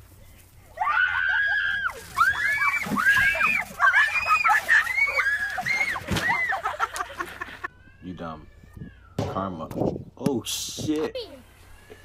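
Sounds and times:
young women screaming and shrieking: 0.7 - 7.9.

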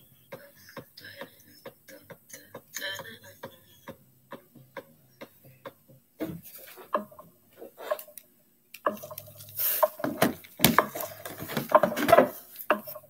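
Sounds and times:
objects clattering and knocking: 8.8 - 13.0.

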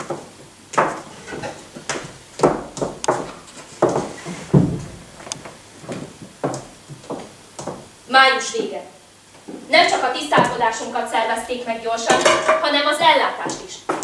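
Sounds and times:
footsteps: 0.0 - 7.9, 9.4 - 11.5, 12.1 - 14.0
knocks and thumps on stage floor: 1.9 - 5.1, 10.3 - 10.7.

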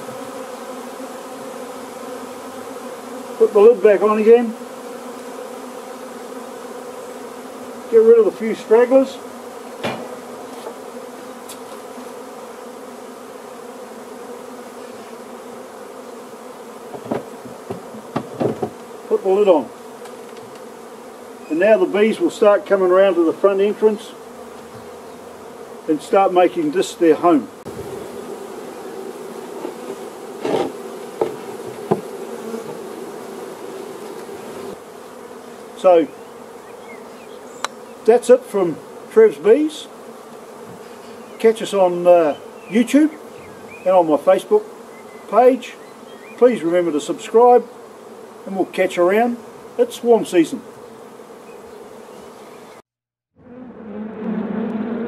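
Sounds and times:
bees buzzing: 0.0 - 55.0
knocks on wooden box: 9.8 - 10.8, 16.9 - 18.8, 30.4 - 32.8.

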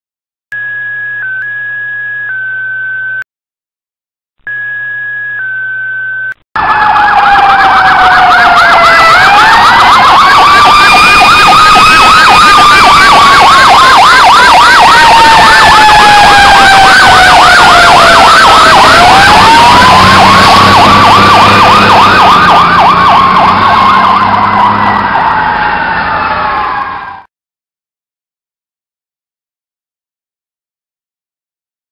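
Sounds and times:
electronic siren yelping: 0.6 - 3.2, 4.5 - 27.3.

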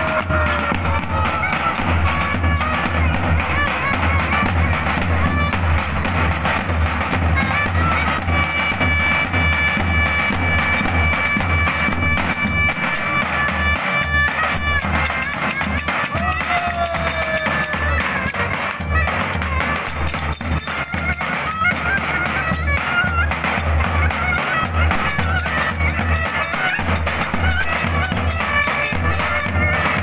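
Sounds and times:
wind instrument high notes: 0.0 - 30.0.

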